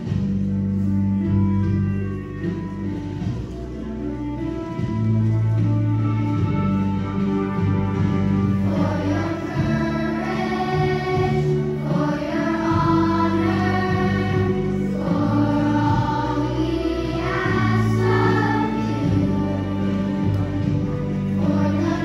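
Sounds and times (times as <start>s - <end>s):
instrumental accompaniment: 0.0s - 22.0s
children's choir singing: 8.4s - 22.0s.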